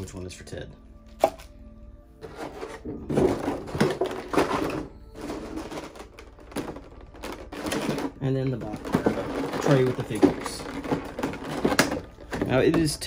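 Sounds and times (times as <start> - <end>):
cardboard box rustling and scraping: 2.2 - 6.2.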